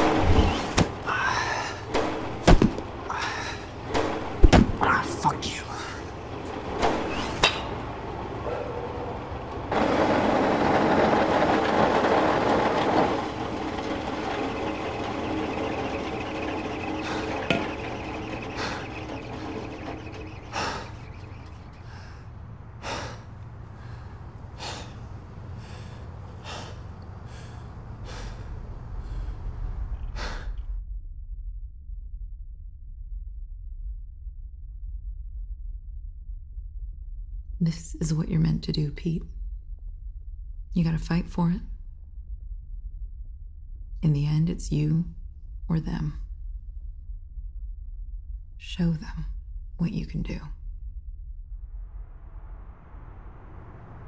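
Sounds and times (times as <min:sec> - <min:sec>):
low rumbling drone: 0:00.0 - 0:54.0
breathy gasps: 0:25.6 - 0:29.4.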